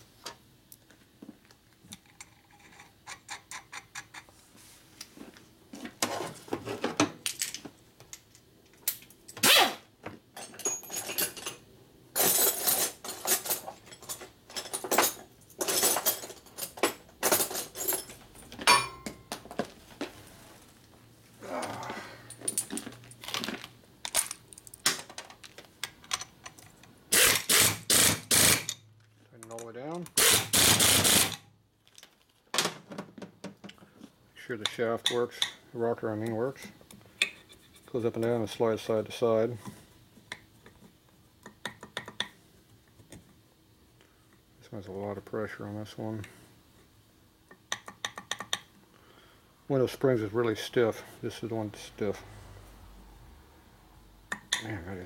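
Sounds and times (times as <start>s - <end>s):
metal tools clinking on workbench: 10.4s - 11.6s, 12.2s - 19.3s
pneumatic air ratchet: 27.1s - 28.8s, 30.2s - 31.4s.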